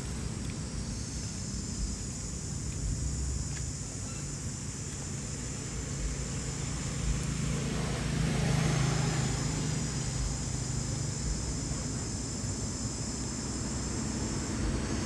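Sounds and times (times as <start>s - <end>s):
steady high hiss: 0.0s - 15.0s
passing vehicle engine drone: 5.2s - 15.0s.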